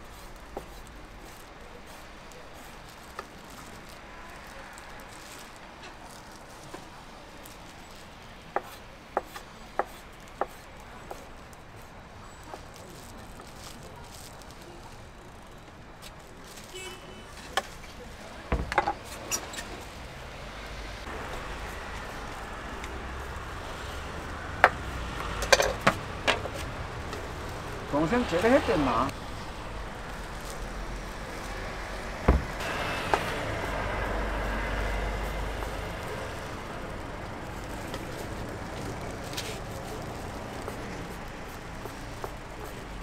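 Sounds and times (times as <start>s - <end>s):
knocks and clatter: 32.2s - 32.6s.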